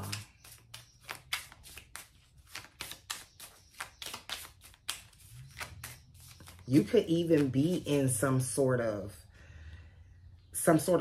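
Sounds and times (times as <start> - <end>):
cards being shuffled: 0.0 - 8.2.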